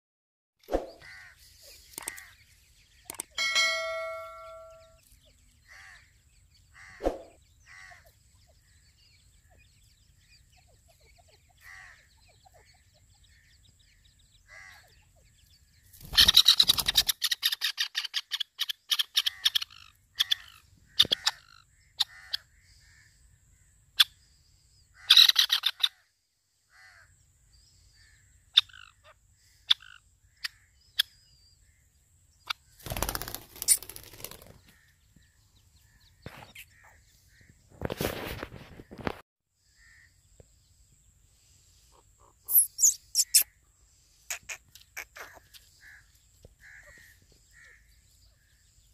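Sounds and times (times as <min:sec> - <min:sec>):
sharp clicks: 0:01.9 - 0:02.3, 0:03.1 - 0:03.4
chicks peeping softly: 0:07.5 - 0:20.4, 0:40.2 - 0:43.5
harsh fast-repeated bird call: 0:16.0 - 0:21.4, 0:32.8 - 0:34.6, 0:42.5 - 0:43.5
brief rustle: 0:37.8 - 0:39.2.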